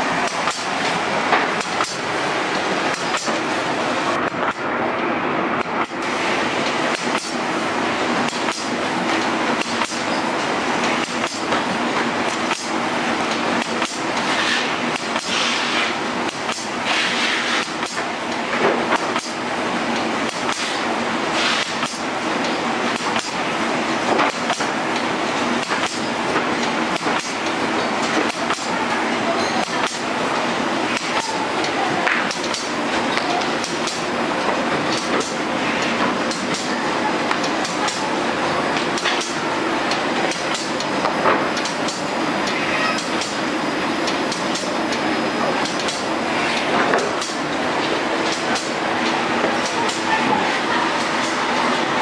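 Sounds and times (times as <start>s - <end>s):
mechanical clatter: 0.2s - 3.5s, 30.9s - 38.1s, 38.7s - 45.0s, 45.6s - 50.2s
sharp machine clacks: 0.2s - 3.5s, 5.6s - 7.5s, 8.2s - 23.5s, 24.1s - 28.8s, 29.4s - 50.2s, 50.9s - 51.8s.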